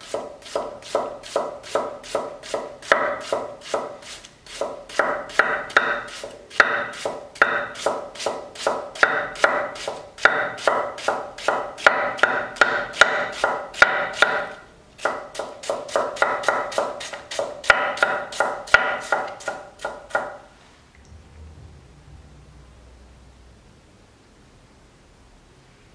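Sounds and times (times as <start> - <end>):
knife chopping on wooden board: 0.1 - 20.4.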